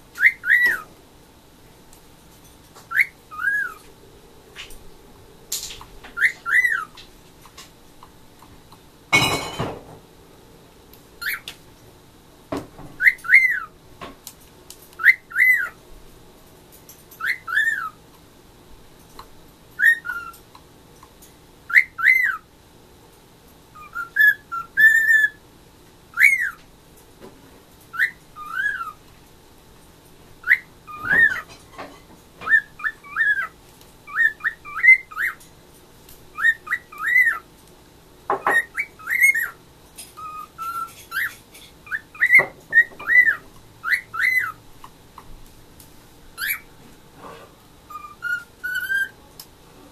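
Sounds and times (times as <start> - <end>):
cockatiel whistling: 0.2 - 0.9, 2.9 - 3.9, 6.1 - 6.9, 11.2 - 11.5, 13.0 - 13.7, 15.0 - 15.8, 17.2 - 18.0, 19.8 - 20.4, 21.7 - 22.4, 23.8 - 25.4, 26.1 - 26.6, 27.9 - 29.0, 30.4 - 31.5, 32.4 - 35.4, 36.3 - 37.4, 38.4 - 39.6, 40.2 - 44.6, 46.4 - 46.7, 47.9 - 49.2.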